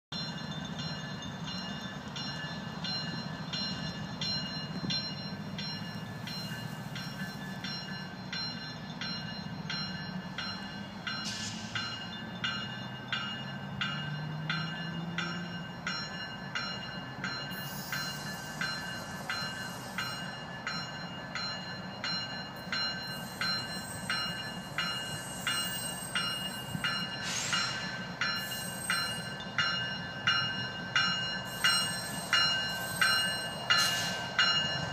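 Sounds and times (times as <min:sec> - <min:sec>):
diesel locomotive running: 0:00.1 - 0:34.9.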